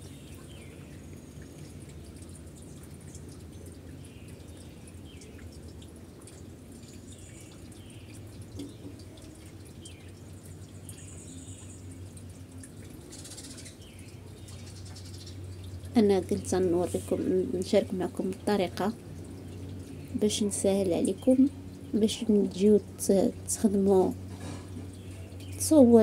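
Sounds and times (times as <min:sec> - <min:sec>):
low machine hum: 0:00.0 - 0:26.0.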